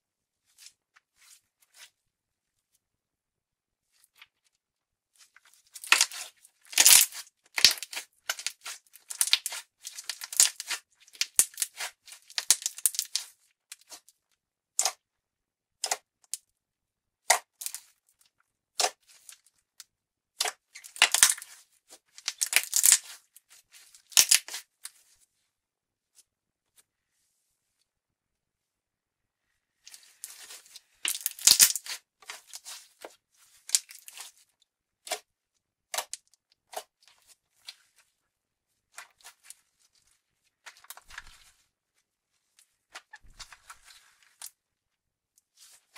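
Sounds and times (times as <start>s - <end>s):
slime crackling and popping: 5.8s - 14.0s, 20.4s - 21.5s, 22.1s - 23.2s, 30.3s - 32.8s.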